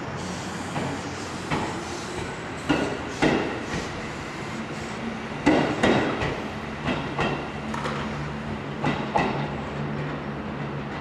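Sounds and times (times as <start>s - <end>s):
train wheels clacking over joints: 0.7s - 3.9s, 5.4s - 8.2s, 8.8s - 10.2s.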